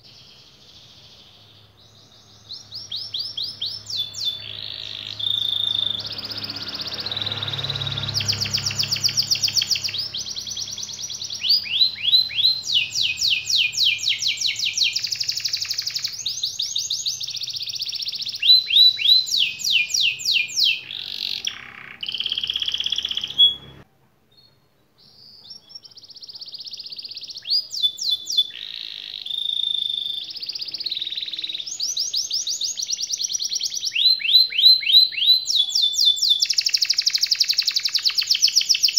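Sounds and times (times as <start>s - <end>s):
canary singing trills: 0.0s - 23.8s, 24.4s - 38.9s.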